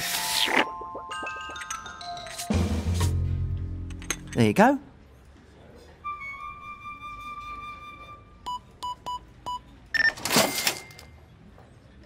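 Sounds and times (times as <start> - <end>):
cash register ring: 9.9 - 11.2.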